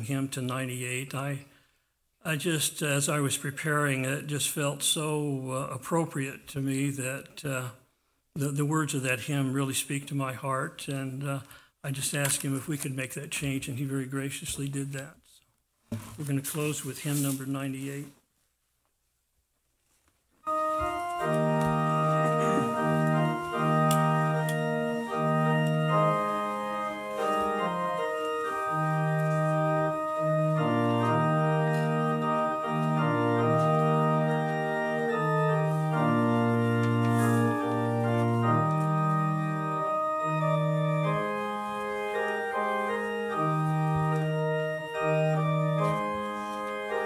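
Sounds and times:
organ playing hymn chords: 0.0s - 1.2s, 2.3s - 7.2s, 20.4s - 47.0s.

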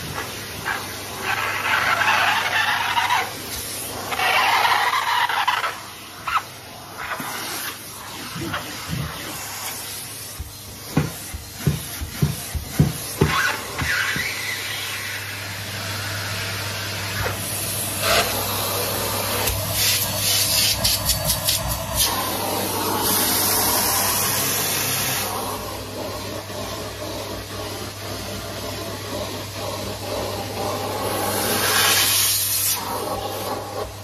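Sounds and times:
vacuum cleaner running: 0.0s - 34.0s
vacuum wand knocking on stairs: 10.3s - 14.4s.

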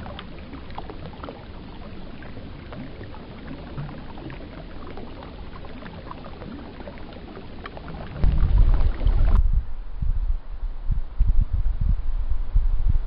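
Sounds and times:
river water flowing: 0.0s - 9.4s
water trickling: 0.0s - 9.4s
loud low rumble: 8.1s - 13.0s.

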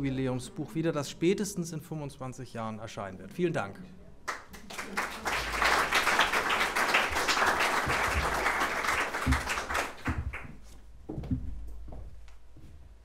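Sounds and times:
audience applauding: 4.3s - 10.6s
dull low thumps: 10.1s - 13.0s.

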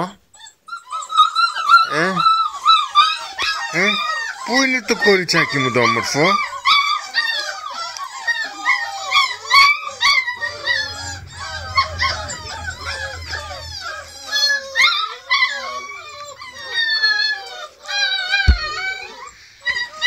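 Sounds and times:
puppies whining and howling: 10.0s - 19.1s
dull thump: 18.5s - 18.8s.

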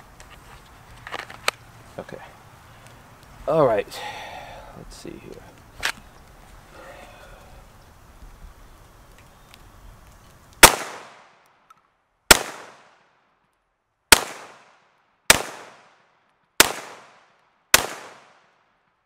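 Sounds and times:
pistol shots with echo: 10.6s - 11.3s, 12.3s - 13.0s, 14.1s - 16.0s, 16.6s - 18.5s.

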